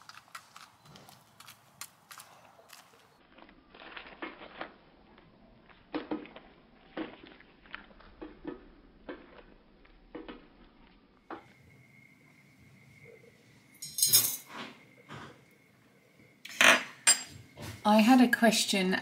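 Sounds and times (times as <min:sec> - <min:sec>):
hens pecking at feeder: 0:00.0 - 0:03.2.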